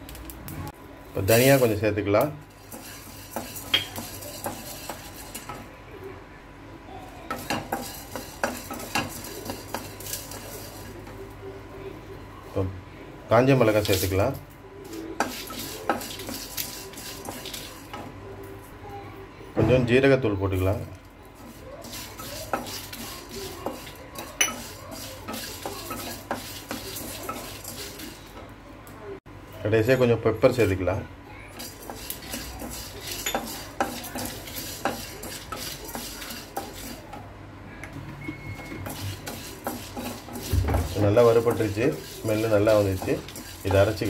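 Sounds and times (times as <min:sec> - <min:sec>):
spatula scraping seeds in pan: 0:02.4 - 0:05.7, 0:07.3 - 0:11.2, 0:14.8 - 0:18.1, 0:21.3 - 0:28.4, 0:31.5 - 0:37.2, 0:38.6 - 0:44.0
spatula knocking pan: 0:07.3 - 0:10.1
seeds rustling in pan: 0:07.3 - 0:11.2, 0:13.6 - 0:14.2.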